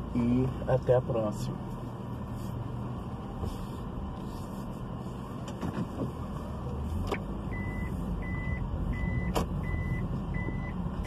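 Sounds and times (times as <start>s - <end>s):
car engine and road noise: 0.0s - 11.0s
beeping tone: 7.5s - 10.8s.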